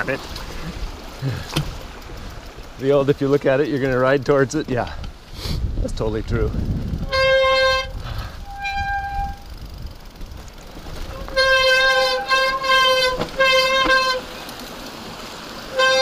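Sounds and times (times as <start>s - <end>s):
tyres rumbling over dirt: 0.0s - 16.0s
bike disc brakes squealing: 7.1s - 9.8s.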